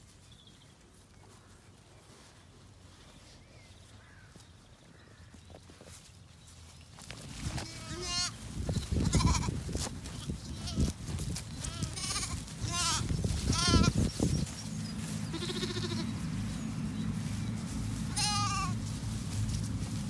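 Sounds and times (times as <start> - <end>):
steady low rumble: 6.3 - 20.0
lambs bleating: 7.5 - 9.6, 10.5 - 14.1, 15.2 - 16.2, 18.1 - 18.8.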